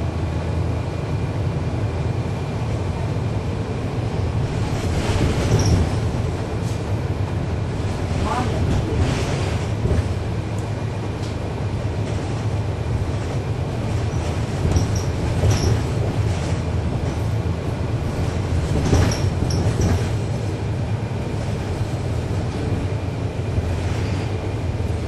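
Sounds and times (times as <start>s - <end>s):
bus diesel engine rumbling: 0.0s - 25.0s
rattles: 13.9s - 17.3s, 18.0s - 20.5s
high squeaks: 14.1s - 15.9s.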